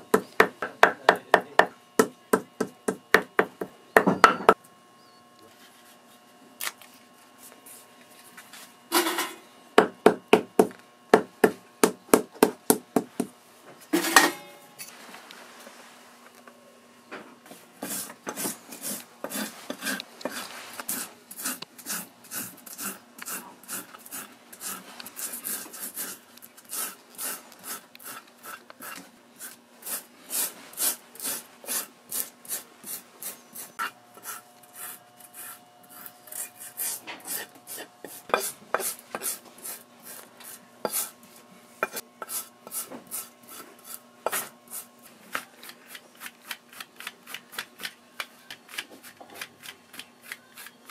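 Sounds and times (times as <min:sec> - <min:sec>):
rasp scraping cork: 0:17.8 - 0:41.1.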